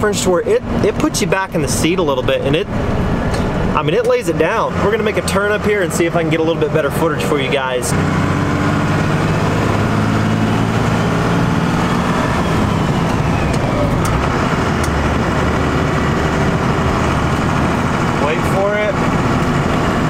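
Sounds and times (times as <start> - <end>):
diesel truck engine running: 0.0 - 20.0
turbo whine: 9.8 - 18.2.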